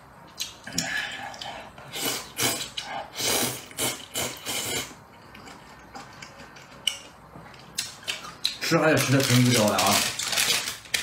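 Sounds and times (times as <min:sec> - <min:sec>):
person slurping noodles: 0:00.7 - 0:05.0.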